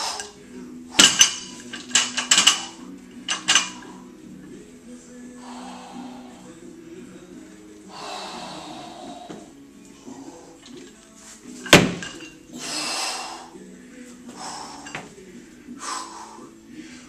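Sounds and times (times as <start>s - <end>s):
barbell clanking: 0.0s - 4.0s
background music: 0.0s - 17.0s
person breathing hard: 5.3s - 6.7s, 7.9s - 10.6s, 12.5s - 13.7s, 14.3s - 17.0s.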